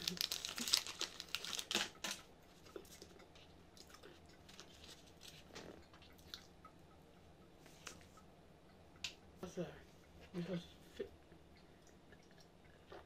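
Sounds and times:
plastic wrapper crinkling: 0.0 - 2.2.

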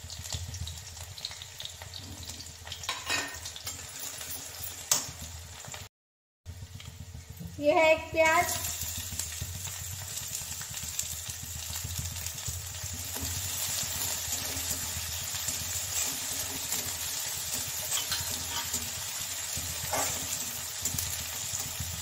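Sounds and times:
onion sizzling in oil: 0.0 - 5.9, 6.5 - 22.0
spatula scraping metal pan: 13.1 - 19.1, 19.8 - 21.0.

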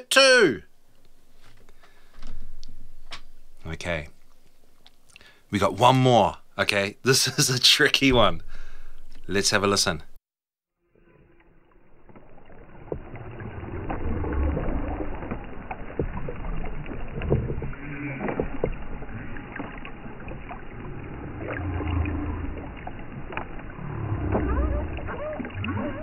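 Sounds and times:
low rumbling water noise: 0.7 - 5.1, 8.1 - 10.2, 10.9 - 26.0
underwater clicks: 0.9 - 5.3, 12.0 - 26.0
whale calls: 11.0 - 26.0.

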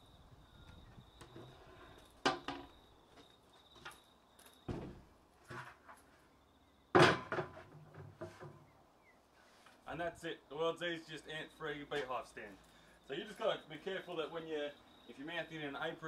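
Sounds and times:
board thudding on wooden stand: 4.7 - 5.7, 6.9 - 8.6.

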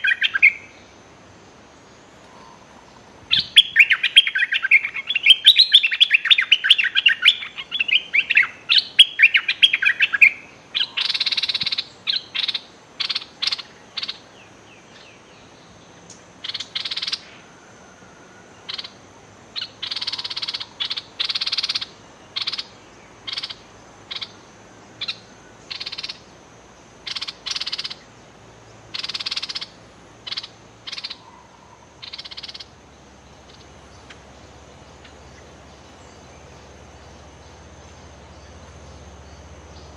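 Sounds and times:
bird warbling song: 0.0 - 1.0, 1.8 - 26.3, 26.9 - 39.9
harsh raspy bird calls: 2.3 - 14.3, 16.4 - 17.4, 18.6 - 19.0, 19.6 - 24.4, 25.0 - 26.3, 27.0 - 28.1, 28.9 - 32.8.

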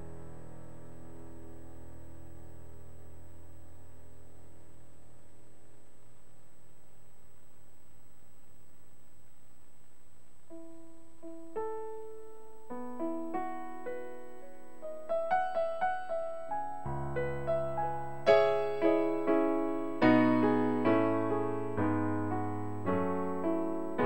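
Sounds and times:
low hum: 0.0 - 24.0
slow stage piano playing: 10.5 - 24.0.

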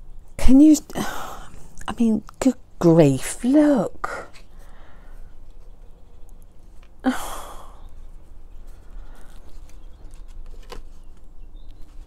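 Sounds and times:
woman sighing: 1.0 - 1.6, 7.0 - 7.9.

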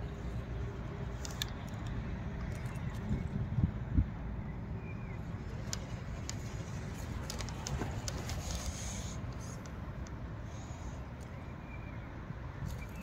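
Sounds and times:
wind rumbling on microphone: 1.5 - 9.9.

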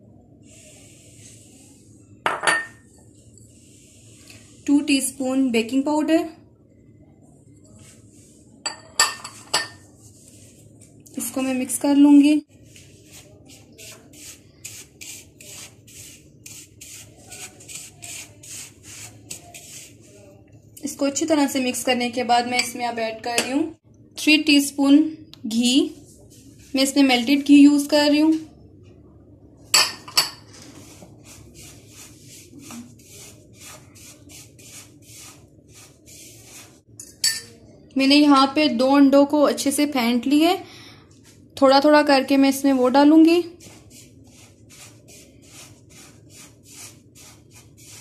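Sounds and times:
fingers scraping powder in a bowl: 12.5 - 20.4, 30.6 - 36.9, 43.5 - 48.0.

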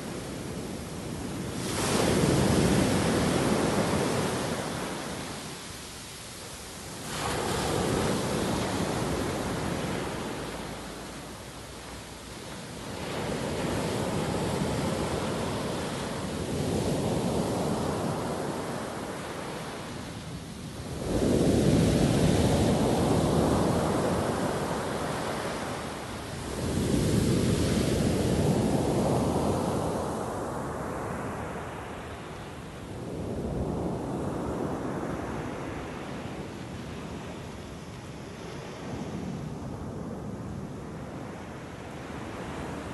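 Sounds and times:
waves breaking on pebble beach: 1.2 - 5.5, 6.8 - 10.9.

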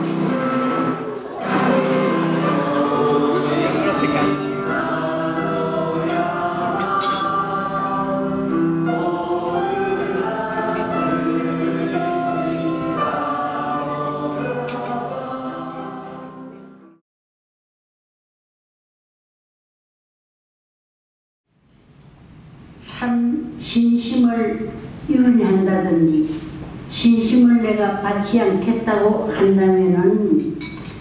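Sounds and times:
group singing: 0.0 - 17.0
music: 0.0 - 17.0.

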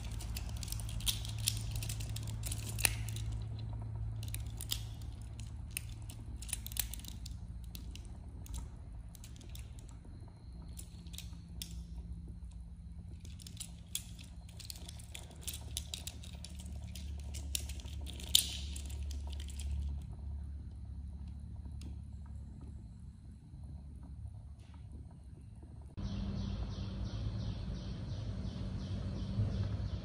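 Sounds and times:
plastic toy joints clicking: 0.0 - 10.0, 10.6 - 11.9, 13.1 - 20.1.

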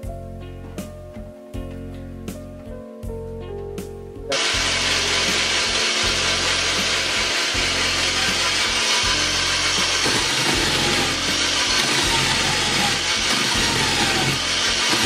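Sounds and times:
electric drill grating coconut: 4.3 - 15.0.

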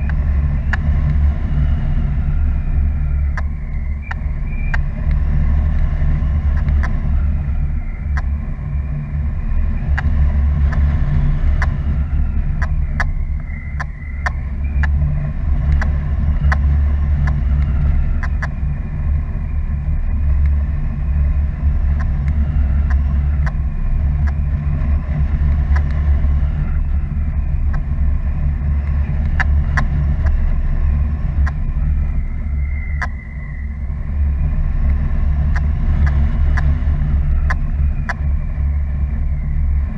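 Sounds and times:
faint ticks: 0.0 - 2.5, 3.2 - 9.0, 9.6 - 18.7, 20.0 - 20.6, 21.6 - 23.6, 24.2 - 28.0, 28.6 - 31.8, 32.8 - 33.6
wind buffeting microphone: 0.0 - 39.9.

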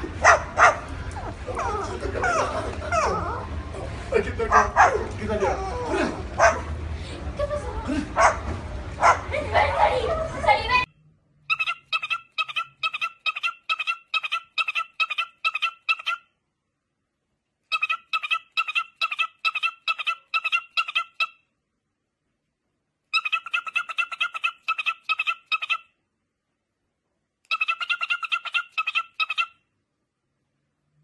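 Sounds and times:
cockatiel chirping: 11.5 - 16.2, 17.7 - 21.4, 23.1 - 25.8, 27.5 - 29.6.

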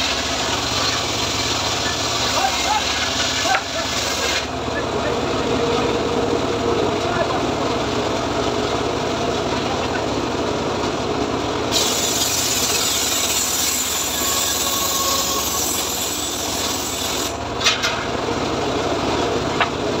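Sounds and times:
saw blade cutting wood hiss: 0.0 - 4.5, 11.7 - 17.4
circular saw engine running: 0.0 - 20.0.

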